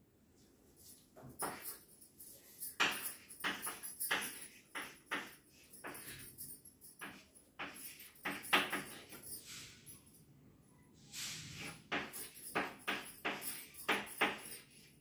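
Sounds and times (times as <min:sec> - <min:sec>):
chalk writing on blackboard: 0:02.4 - 0:06.2, 0:07.0 - 0:09.8, 0:11.1 - 0:15.0.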